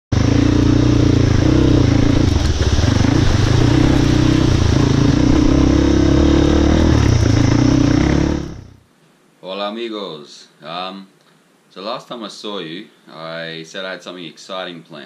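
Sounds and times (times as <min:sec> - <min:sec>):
dirt bike engine running: 0:00.1 - 0:08.8.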